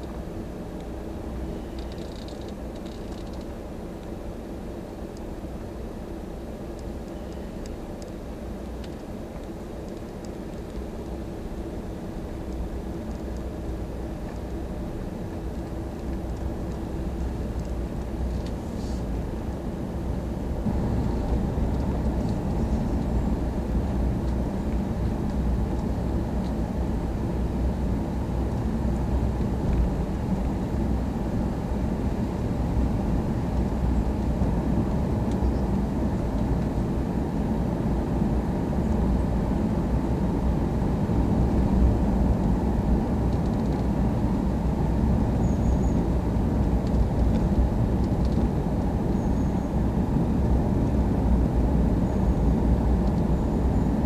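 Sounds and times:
car engine and tyre rumble: 0:00.0 - 0:54.0.

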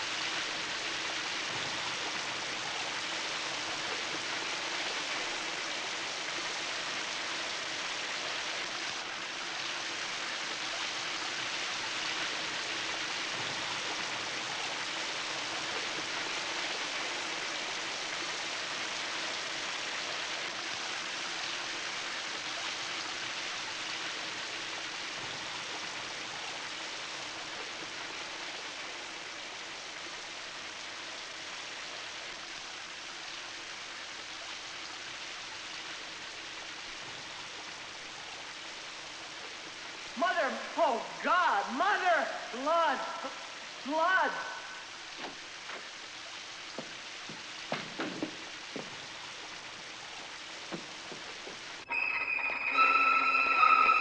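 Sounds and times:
shower water spraying: 0:45.1 - 0:54.0.

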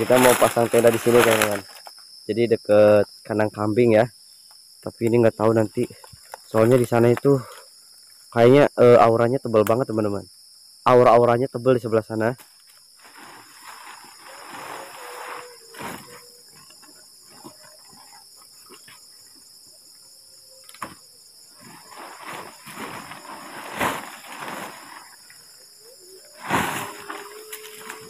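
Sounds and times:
tent fabric rustling: 0:00.0 - 0:01.9, 0:13.0 - 0:18.2, 0:21.5 - 0:25.6, 0:26.3 - 0:28.0
crickets chirring: 0:00.0 - 0:28.0.

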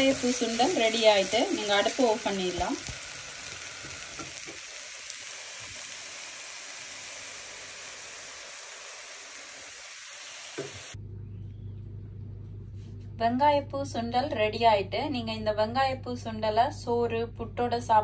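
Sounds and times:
stir fry sizzling in a pan: 0:00.0 - 0:11.0
low steady hum: 0:10.9 - 0:18.0.

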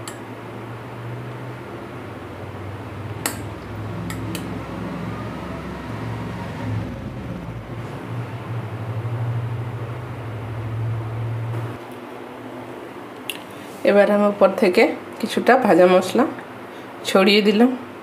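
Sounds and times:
steady low hum: 0:00.0 - 0:15.2
steel ladle clinking: 0:03.2 - 0:04.5.

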